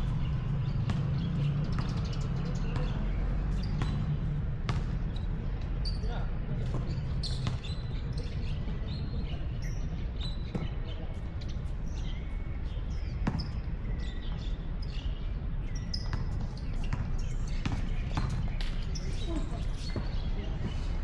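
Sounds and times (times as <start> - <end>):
birds chirping: 0.0 - 21.0
basketball bouncing: 0.8 - 2.2, 3.6 - 5.2, 6.6 - 7.7, 13.2 - 13.6, 16.1 - 18.8.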